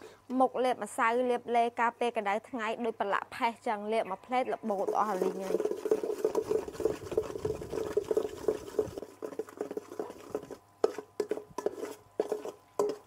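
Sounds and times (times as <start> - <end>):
spoon stirring and scraping a pot: 4.6 - 13.0.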